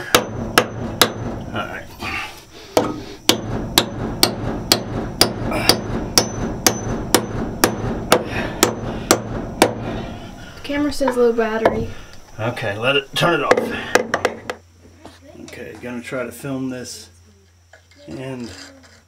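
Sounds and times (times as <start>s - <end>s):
hammer striking nail in wood: 0.1s - 1.4s, 2.8s - 9.9s.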